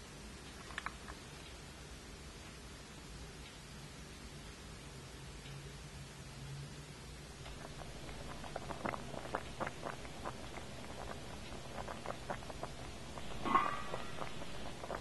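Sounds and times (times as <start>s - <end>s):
pot simmering with bubbling pops: 7.3s - 15.0s.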